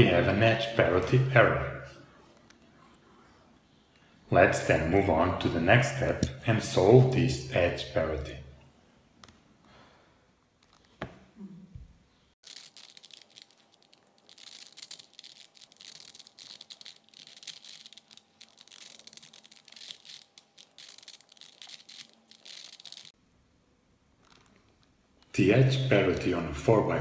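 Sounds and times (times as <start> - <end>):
puzzle cube clicking and rattling: 12.4 - 23.1.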